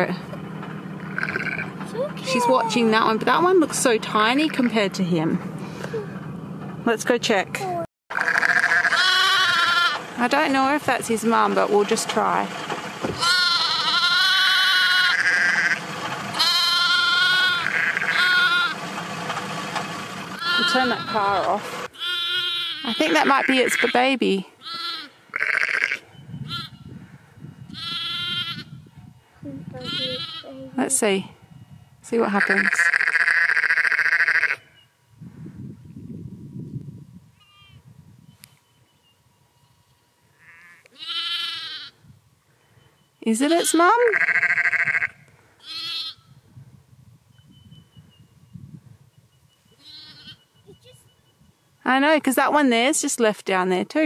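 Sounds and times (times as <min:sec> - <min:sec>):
lamb bleating: 0:01.0 - 0:02.7, 0:08.1 - 0:10.0, 0:13.2 - 0:15.8, 0:16.4 - 0:18.8, 0:20.4 - 0:26.8, 0:27.7 - 0:28.8, 0:29.8 - 0:30.7, 0:32.4 - 0:34.6, 0:37.4 - 0:37.8, 0:40.4 - 0:42.0, 0:43.5 - 0:46.4, 0:49.8 - 0:50.4.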